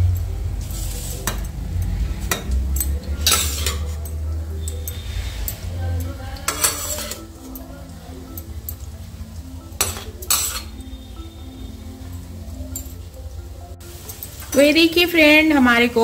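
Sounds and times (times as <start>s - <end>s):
metal spoon clinking on cookware: 0.0s - 9.0s, 9.6s - 11.0s, 12.0s - 13.2s, 13.9s - 14.8s
spoon scraping metal: 0.6s - 7.7s, 9.8s - 11.0s.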